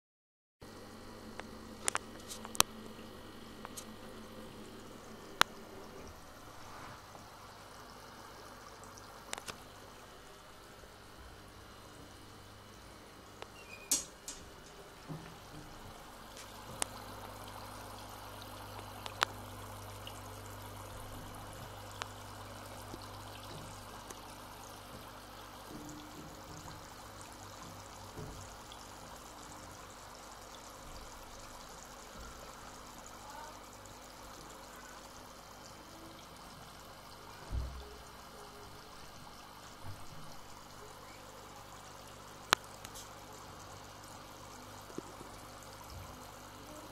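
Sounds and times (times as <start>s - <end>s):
water running into washbasin: 1.3s - 46.9s.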